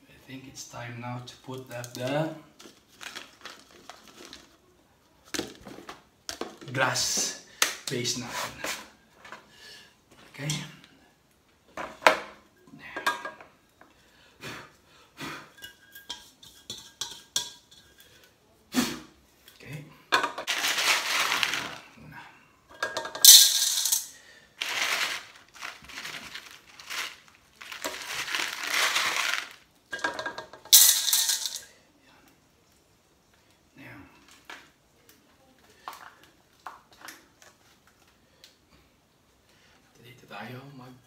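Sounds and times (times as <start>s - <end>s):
pebbles clattering against glass: 20.3s - 21.8s, 22.8s - 31.6s.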